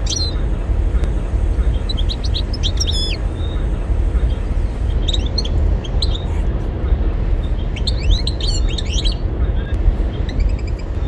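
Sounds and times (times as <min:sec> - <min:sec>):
finch chirping and twittering: 0:00.0 - 0:00.4, 0:01.6 - 0:03.6, 0:04.2 - 0:06.4, 0:07.4 - 0:11.0
steady low rumble: 0:00.0 - 0:11.0.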